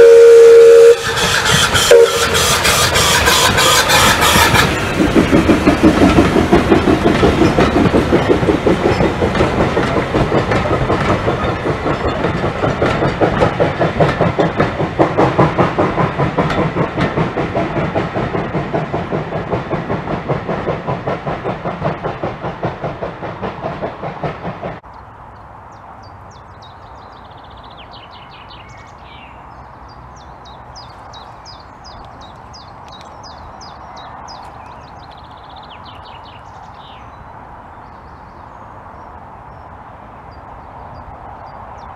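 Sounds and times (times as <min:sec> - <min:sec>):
steam locomotive exhaust beat: 0:00.0 - 0:24.9
wheels clicking over rail joints: 0:00.9 - 0:37.1
birds chirping: 0:24.9 - 0:41.9.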